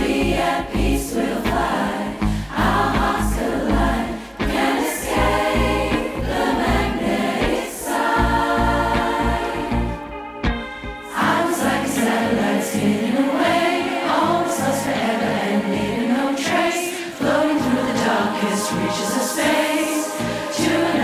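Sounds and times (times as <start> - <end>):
choir singing: 0.0 - 21.0.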